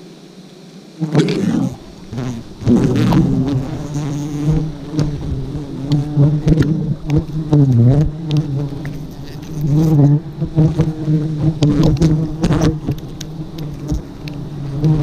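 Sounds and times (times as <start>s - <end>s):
bees buzzing loudly: 0.0s - 15.0s.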